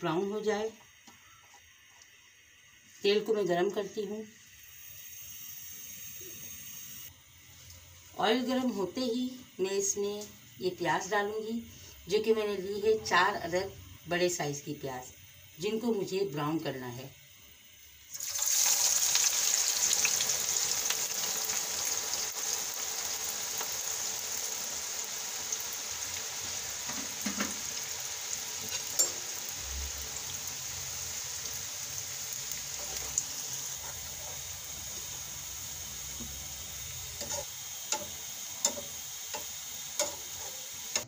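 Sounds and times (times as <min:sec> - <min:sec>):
onions sizzling in hot oil: 0:00.0 - 0:41.0.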